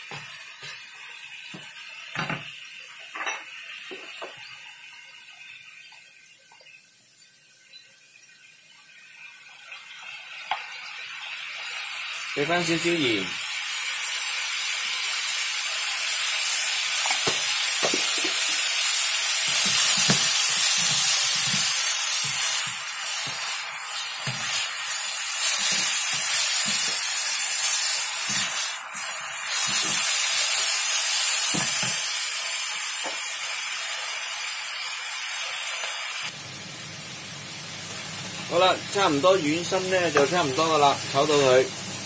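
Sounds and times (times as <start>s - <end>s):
food sizzling in a wok: 0.0s - 42.0s
spatula knocking and scraping pan: 17.0s - 18.7s, 19.4s - 23.6s, 24.2s - 28.6s.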